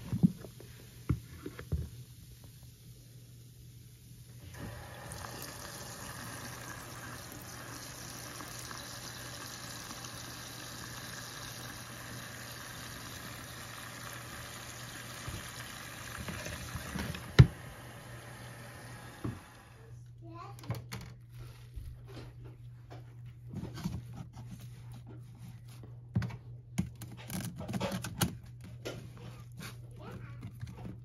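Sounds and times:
water running into tub: 4.2s - 20.0s.

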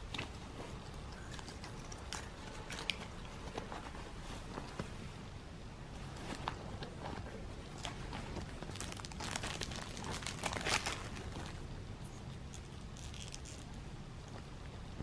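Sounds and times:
plastic or paper rustling: 6.1s - 11.6s.

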